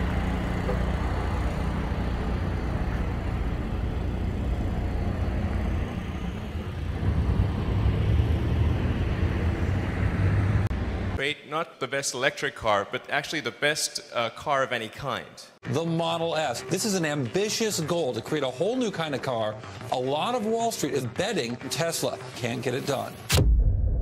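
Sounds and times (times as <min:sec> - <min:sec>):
road traffic rumble: 0:00.0 - 0:11.2.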